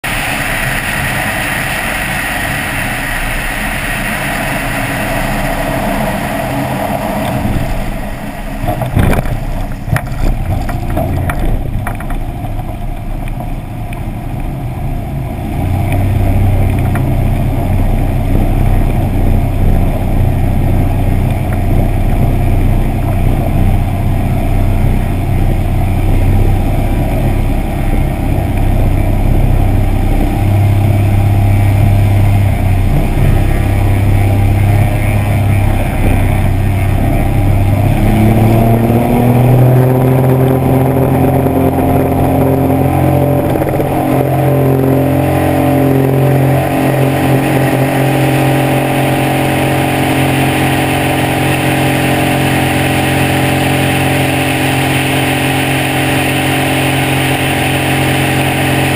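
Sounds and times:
light plane engine and propeller: 0.0 - 58.9
rushing air: 0.0 - 58.9
wheels bumping on rough grass: 8.6 - 13.6.

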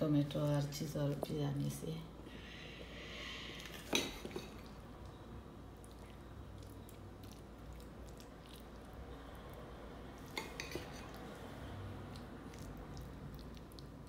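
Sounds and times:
soft squishy dollops: 5.0 - 14.0
spoon scraping: 10.2 - 11.2.

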